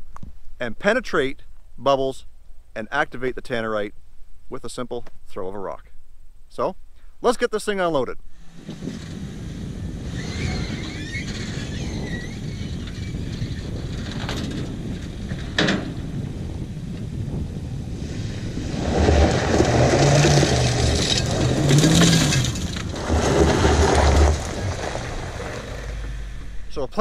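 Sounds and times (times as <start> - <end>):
tyres crunching on gravel: 18.1 - 27.0
car engine running: 18.5 - 26.8.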